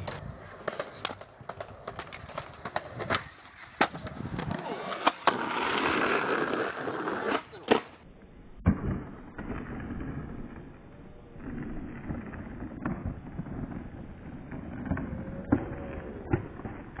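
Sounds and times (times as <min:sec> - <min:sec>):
wind-like microphone rumble: 0:02.3 - 0:04.7.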